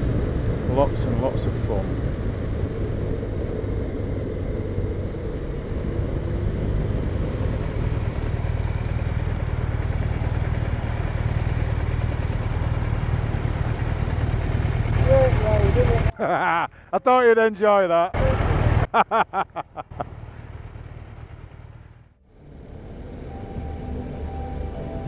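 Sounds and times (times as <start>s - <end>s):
wind rush: 0.0s - 8.2s
motorcycle engine running: 1.6s - 16.1s, 20.0s - 24.9s.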